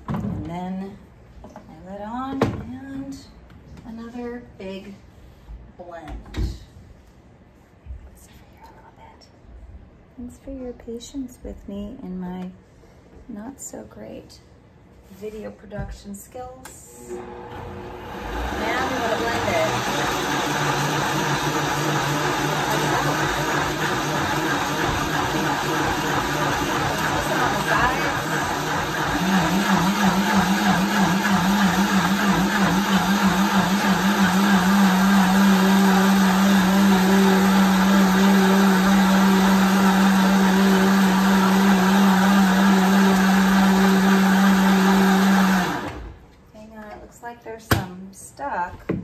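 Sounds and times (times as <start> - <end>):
blender running: 17.0 - 46.2.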